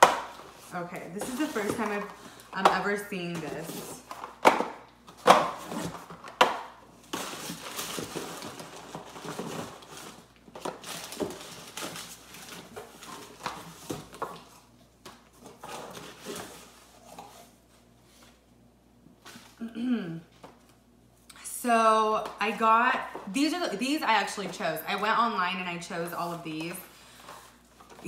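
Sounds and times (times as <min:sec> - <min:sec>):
packaging rustling: 0:00.4 - 0:02.5, 0:07.0 - 0:14.6.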